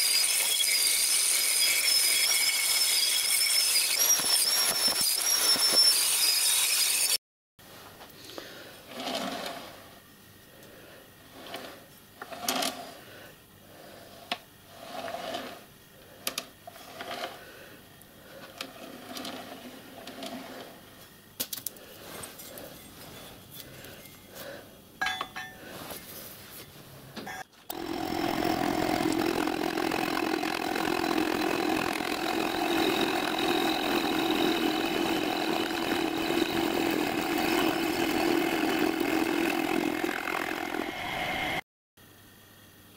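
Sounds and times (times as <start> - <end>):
milling machine running: 27.7 - 41.6.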